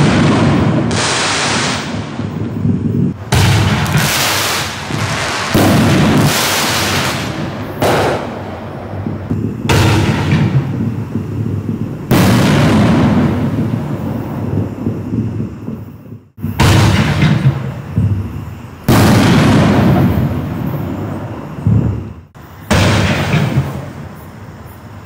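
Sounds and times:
fireworks shells banging: 3.2s - 10.9s, 16.4s - 22.0s, 22.6s - 24.2s.

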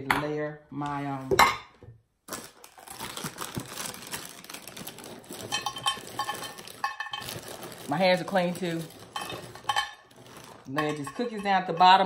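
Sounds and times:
cardboard box crinkling and rustling: 2.3s - 10.7s.

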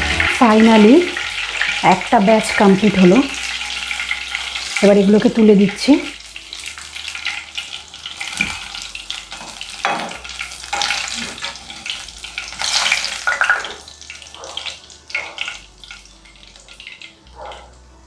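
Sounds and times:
oil sizzling: 0.0s - 18.0s
metal spoon stirring in pan: 6.3s - 13.8s.

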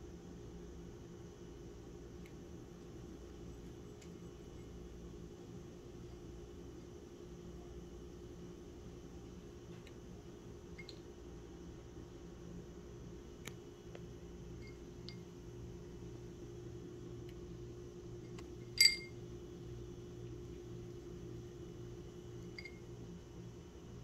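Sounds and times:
low steady hum: 0.0s - 24.0s
ice cube clinking in ceramic bowl: 18.8s - 19.1s.

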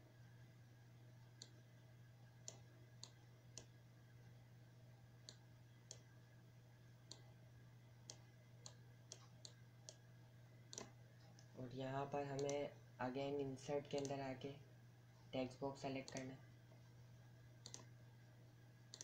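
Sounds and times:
steady low hum: 0.0s - 19.0s
computer mouse clicking: 1.4s - 1.6s, 2.4s - 3.8s, 5.2s - 6.1s, 7.1s - 7.3s, 8.0s - 10.0s, 10.7s - 11.5s, 12.3s - 12.7s, 13.9s - 14.2s, 16.0s - 16.3s, 17.6s - 17.9s.

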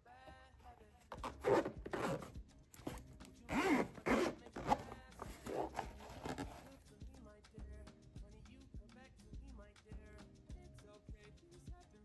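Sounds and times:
zipper being pulled: 1.1s - 6.8s.

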